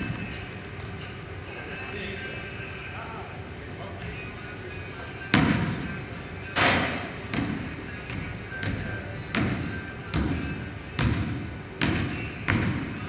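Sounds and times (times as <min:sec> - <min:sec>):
basketball bouncing on hardwood floor: 0:07.3 - 0:12.9.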